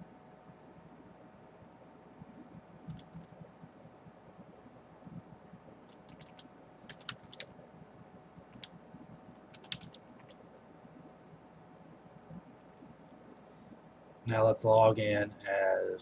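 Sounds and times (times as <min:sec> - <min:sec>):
keyboard typing: 0:02.3 - 0:03.7, 0:05.0 - 0:07.6, 0:08.4 - 0:08.8, 0:09.4 - 0:10.4.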